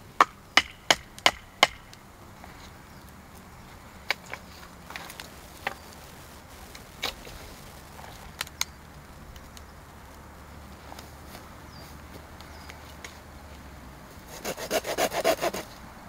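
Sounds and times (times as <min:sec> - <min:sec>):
dry branches knocking together: 0:02.6 - 0:13.2.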